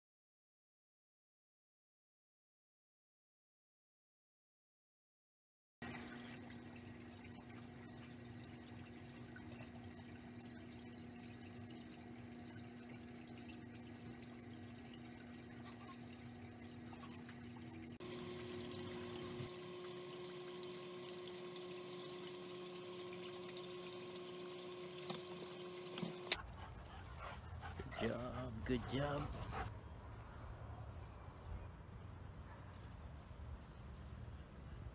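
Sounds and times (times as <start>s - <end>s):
aquarium filter hum: 5.8s - 26.4s
water trickling and splashing: 5.8s - 29.7s.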